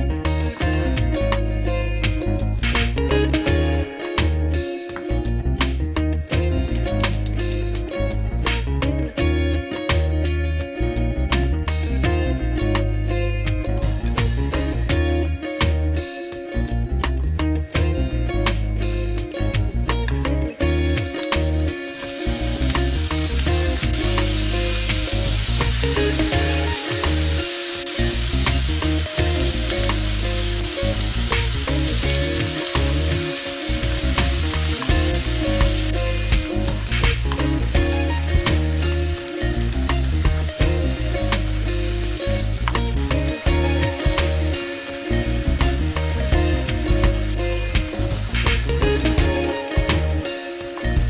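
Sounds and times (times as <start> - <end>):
meat and onion sizzling in a pan: 18.4 - 51.0.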